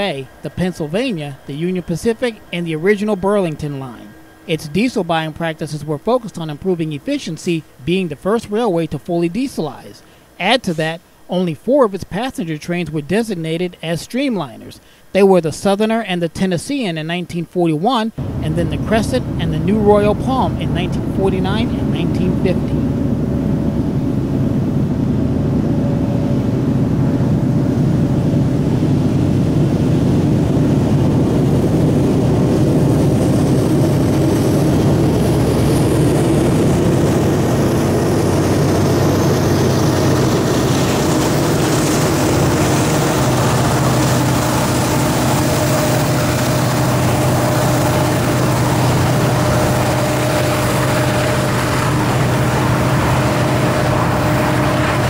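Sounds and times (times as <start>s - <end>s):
train wheel and rail noise: 0.0s - 4.5s, 18.2s - 24.4s, 25.6s - 55.0s
diesel locomotive engines droning: 0.0s - 7.8s, 18.2s - 55.0s.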